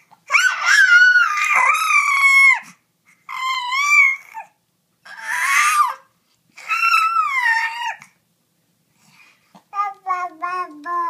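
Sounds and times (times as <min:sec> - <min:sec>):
baby squealing coos: 0:00.3 - 0:04.5, 0:05.1 - 0:08.1.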